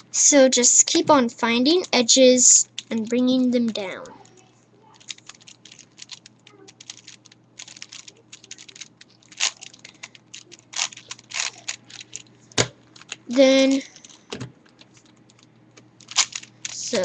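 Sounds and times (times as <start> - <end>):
plastic puzzle cube layers clicking: 5.0 - 16.8.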